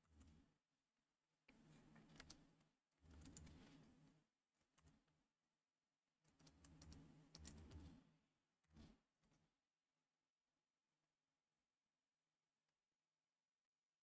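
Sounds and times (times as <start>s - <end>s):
keyboard typing: 3.1s - 3.6s, 6.3s - 7.9s.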